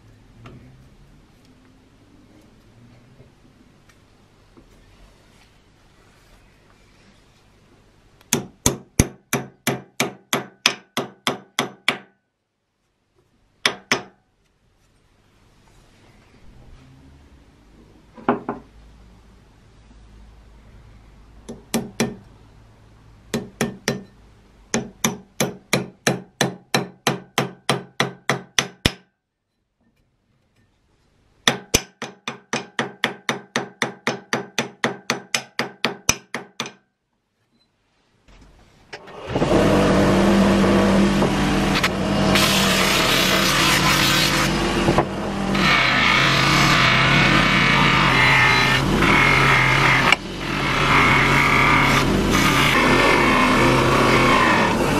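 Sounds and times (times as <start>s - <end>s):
hammer tapping on steel axe head: 23.4s - 24.2s.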